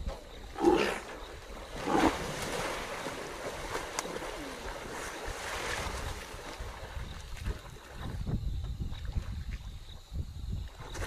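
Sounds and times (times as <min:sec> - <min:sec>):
water splashing and churning: 0:00.0 - 0:11.0
moving water wash: 0:00.9 - 0:08.4.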